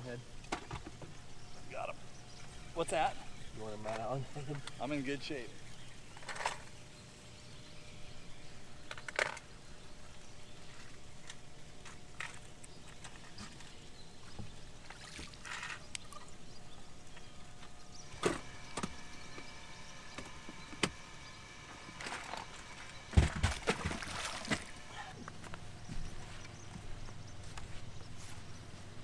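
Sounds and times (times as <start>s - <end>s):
water trickling and splashing: 14.2s - 16.4s, 22.2s - 25.2s.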